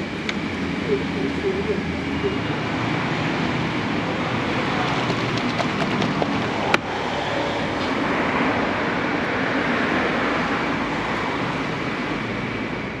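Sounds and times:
road traffic hum: 0.0s - 13.0s.

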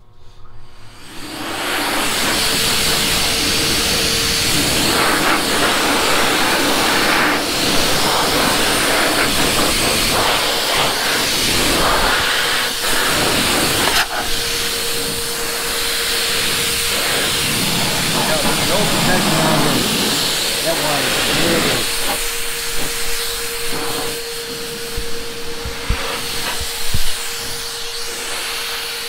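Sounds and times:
faint motor whine: 0.0s - 29.0s
air dryer blowing air: 0.6s - 29.0s.

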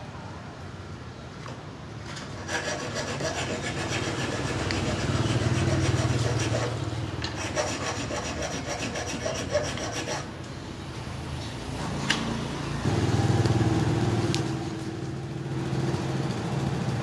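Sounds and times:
rasping scraping noise: 2.2s - 10.3s.

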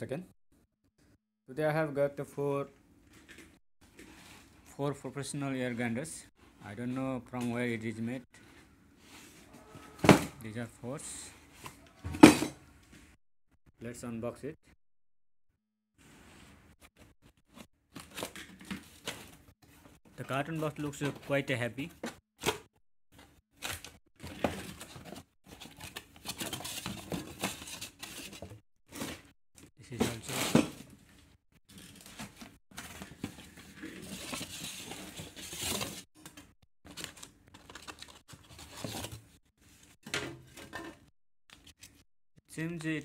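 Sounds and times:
cardboard tearing and rustling: 23.5s - 29.3s, 31.7s - 36.0s.

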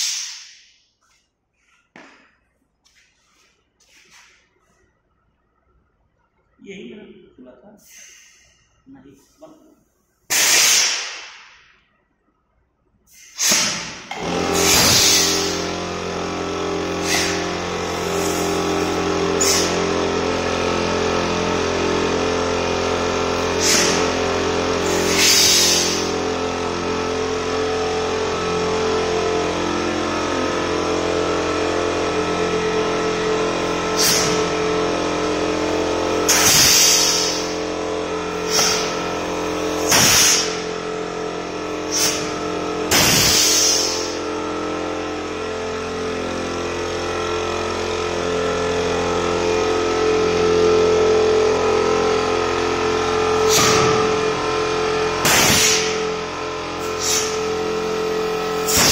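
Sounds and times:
compressed air hisses: 0.0s - 0.6s, 7.8s - 8.6s, 10.3s - 11.0s, 13.1s - 13.9s, 14.6s - 15.6s, 17.0s - 17.4s, 24.8s - 26.1s, 36.3s - 37.6s, 38.4s - 39.0s, 39.9s - 40.6s, 41.9s - 42.3s, 42.9s - 44.2s, 56.9s - 57.4s
machine hum: 11.0s - 58.9s.

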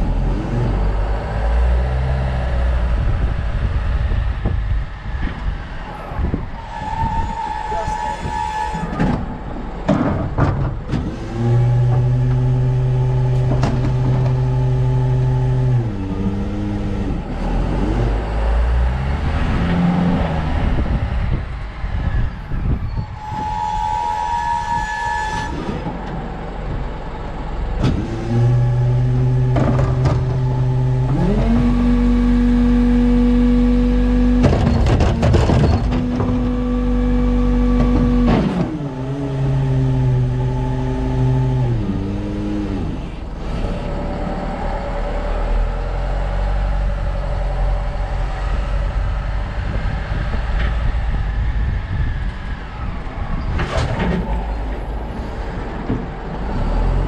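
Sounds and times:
diesel truck engine under load: 0.0s - 57.0s
truck body clanks and rattles: 8.8s - 12.6s, 13.2s - 14.5s, 25.8s - 32.0s, 34.2s - 36.7s, 37.4s - 38.8s, 53.4s - 56.9s.

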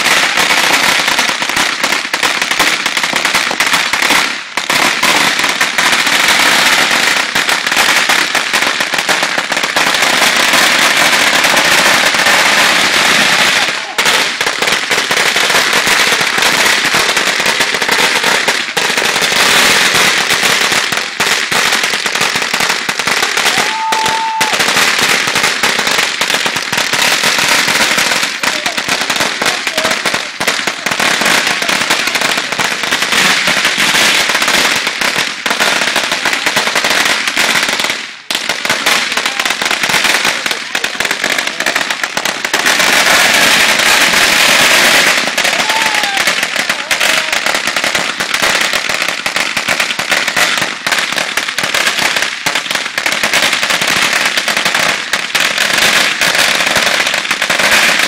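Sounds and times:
firecrackers crackling: 0.0s - 58.0s
firework whistle: 23.3s - 24.8s.

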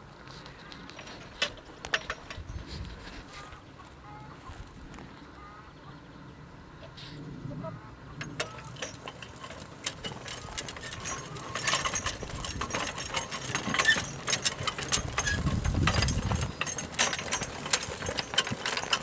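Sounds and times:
plow frame rattling and clinking: 0.7s - 3.3s, 8.2s - 19.0s.

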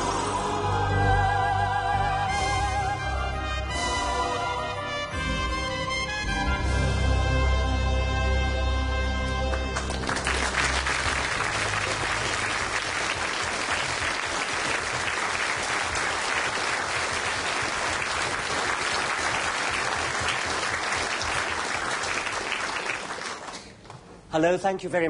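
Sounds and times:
audience applauding: 9.5s - 23.9s.

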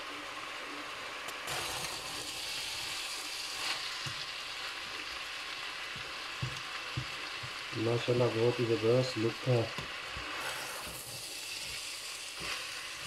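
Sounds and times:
vegetables sizzling in oil: 0.0s - 13.0s.

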